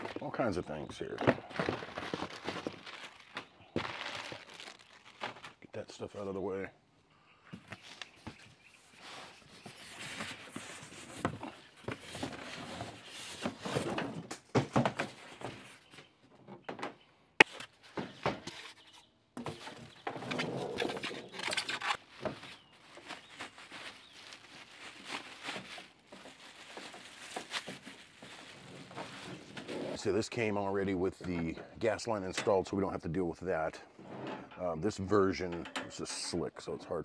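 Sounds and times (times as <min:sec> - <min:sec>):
packaging rustling: 0:01.0 - 0:05.6, 0:20.7 - 0:29.8.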